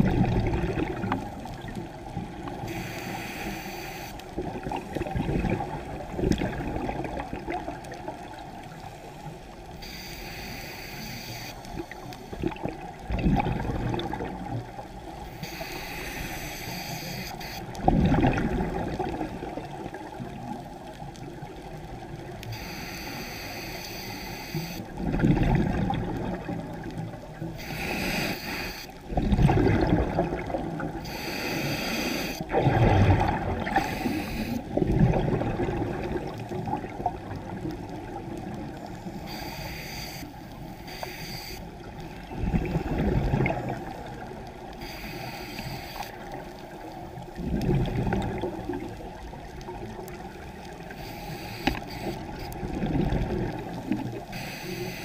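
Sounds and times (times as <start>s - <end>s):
exhaled air bubbling: 0.0s - 3.0s, 4.2s - 8.8s, 11.7s - 16.4s, 17.3s - 22.8s, 24.8s - 38.9s, 41.7s - 45.0s, 46.0s - 54.4s
regulator hiss on inhalation: 2.7s - 4.2s, 9.8s - 12.4s, 15.3s - 17.7s, 22.5s - 24.8s, 27.6s - 29.0s, 31.0s - 32.5s, 33.7s - 34.6s, 38.9s - 41.7s, 44.8s - 46.2s, 50.9s - 52.6s, 54.3s - 55.0s.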